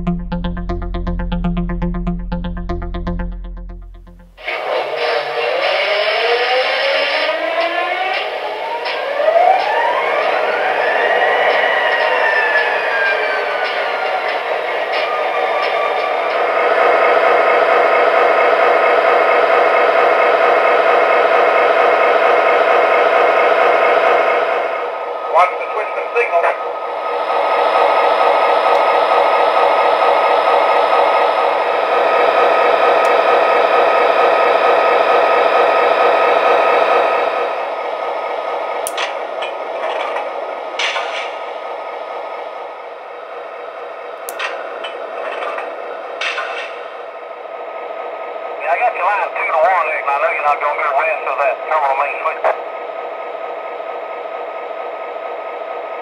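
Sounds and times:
diesel engine running through small speaker: 0.0s - 8.4s
model locomotive diesel engine sound: 4.0s - 56.0s.

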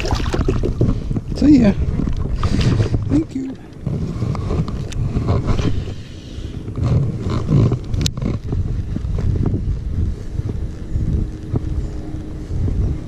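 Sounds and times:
wind rumble: 0.0s - 13.0s
sleeve rubbing on microphone: 3.8s - 13.0s.

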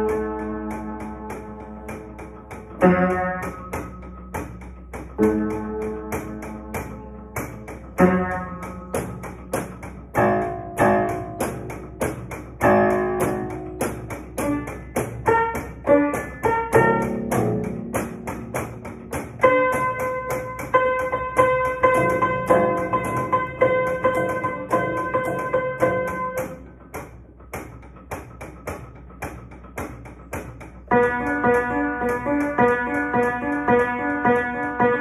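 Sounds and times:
out-of-tune piano fast runs: 0.0s - 35.0s
repeated piano chord: 0.0s - 35.0s.

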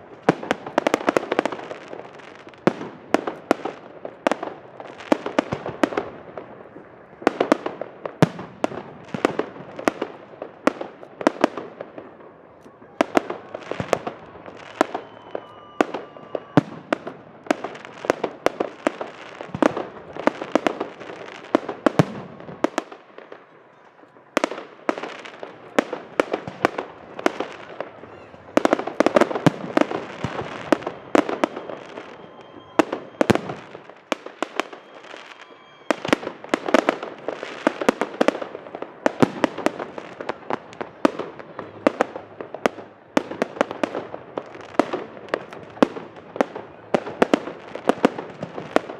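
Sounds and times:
fireworks bursting and crackling: 0.0s - 48.9s.

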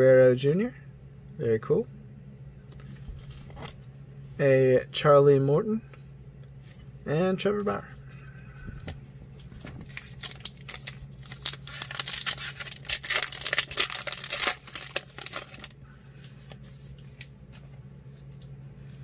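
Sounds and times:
cards rustling: 8.8s - 18.6s
card pack wrapper tearing: 9.9s - 15.8s.

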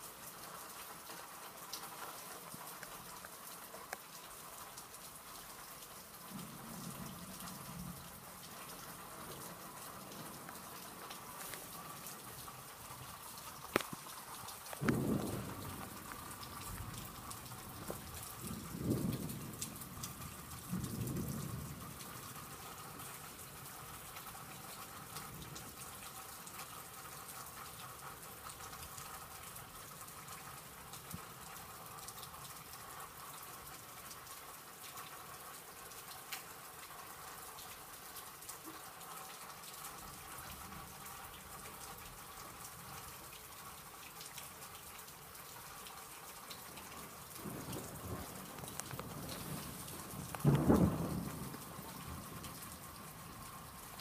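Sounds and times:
steady rain: 0.0s - 54.0s
thunder rumbling: 14.8s - 22.4s, 47.4s - 53.4s.

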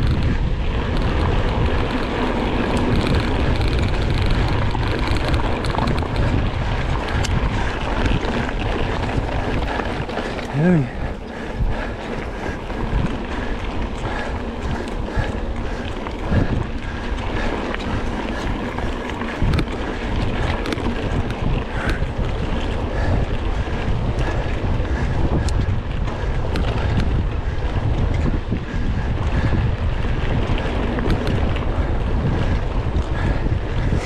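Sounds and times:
bike knocks and rattles: 0.0s - 34.0s
wind rushing over microphone: 0.0s - 34.0s.

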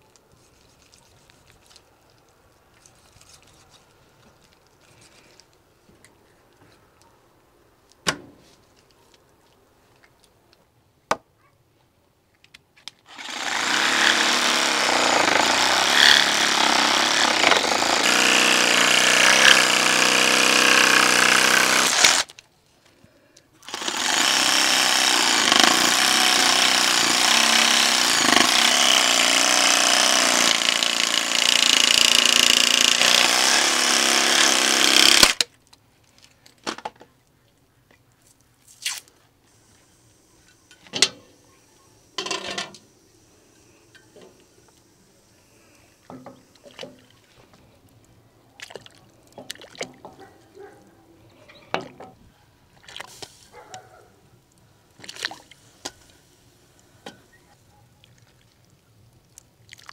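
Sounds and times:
reciprocating saw cutting bone: 13.1s - 22.3s.

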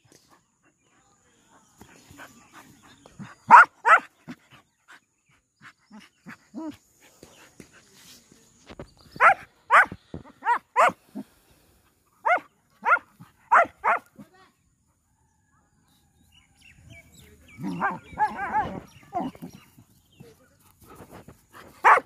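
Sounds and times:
dogs barking: 3.4s - 4.1s, 9.2s - 11.0s, 12.2s - 14.2s, 17.6s - 19.6s, 21.8s - 22.0s.

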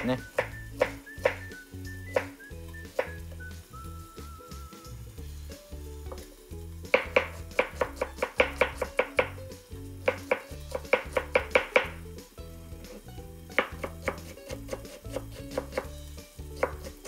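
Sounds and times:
background music: 0.0s - 17.0s
knife chopping on cutting board: 0.3s - 1.5s, 6.9s - 9.4s, 10.0s - 12.0s, 13.5s - 17.0s.

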